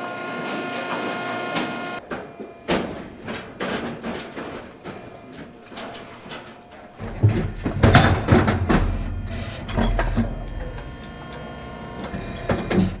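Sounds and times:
steady low hum: 0:00.0 - 0:13.0
metal chute clanking and knocking: 0:00.4 - 0:13.0.

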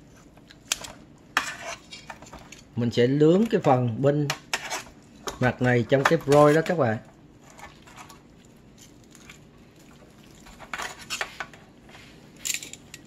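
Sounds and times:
utensil scraping metal pan: 0:01.4 - 0:02.2, 0:04.3 - 0:05.0.

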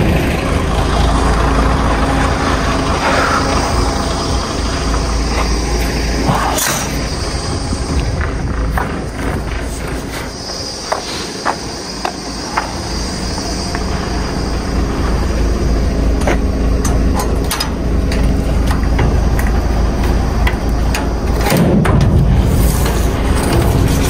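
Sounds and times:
lorry engine droning: 0:00.0 - 0:24.0
knocks and rattles: 0:16.2 - 0:24.0.

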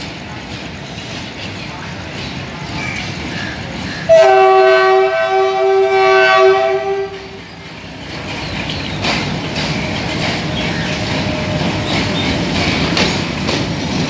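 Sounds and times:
locomotive engine and wagons rolling: 0:00.0 - 0:14.0
locomotive horn blast: 0:04.1 - 0:07.4.

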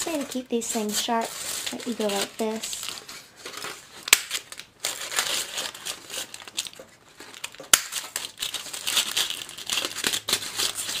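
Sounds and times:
aluminium foil crinkling: 0:00.0 - 0:11.0.

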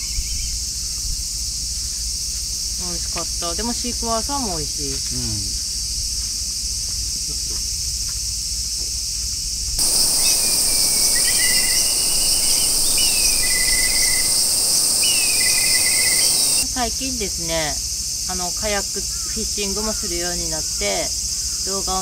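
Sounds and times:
insects chorus: 0:00.0 - 0:22.0
short chirping trills: 0:09.8 - 0:16.6.

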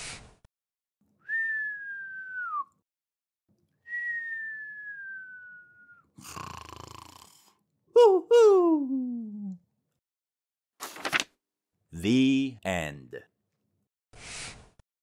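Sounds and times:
whistling snore: 0:03.9 - 0:07.5.

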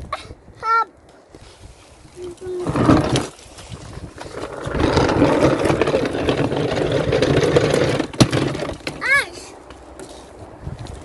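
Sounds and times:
vacuum cleaner wheels scraping paving: 0:01.4 - 0:09.3.

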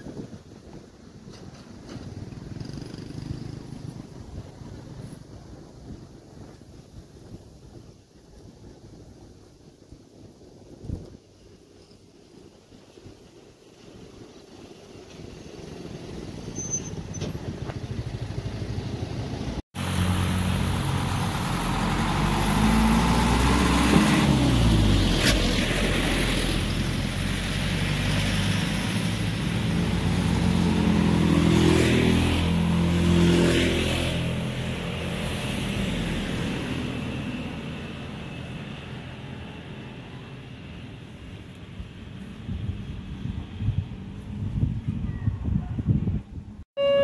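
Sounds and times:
motorcycles and cars passing: 0:01.6 - 0:06.7, 0:15.2 - 0:45.0.

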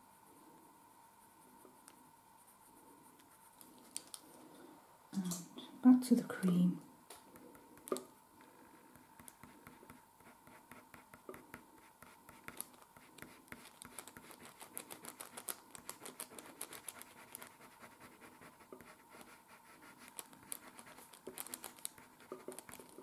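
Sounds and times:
pencil scratching on paper: 0:08.8 - 0:23.0.

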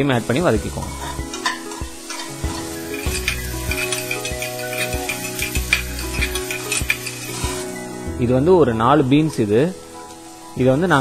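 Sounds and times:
vegetables sizzling in oil: 0:00.0 - 0:08.1
metal spoon scraping a pan: 0:00.8 - 0:07.8.

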